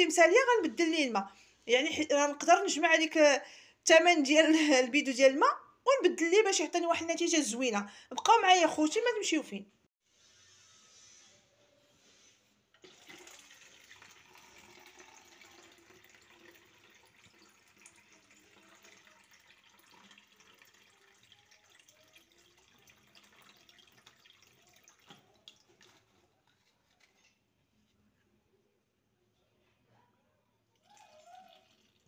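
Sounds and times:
water running into a jug: 0:12.8 - 0:26.1, 0:30.8 - 0:32.0.

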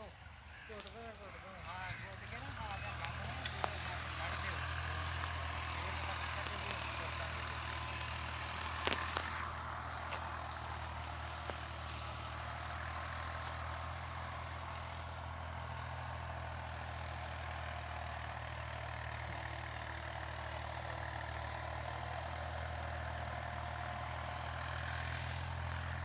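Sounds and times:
low engine drone: 0:00.0 - 0:15.9.

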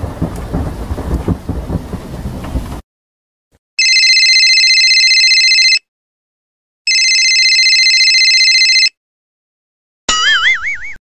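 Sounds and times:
telephone ringing: 0:03.8 - 0:05.9, 0:06.9 - 0:09.0.

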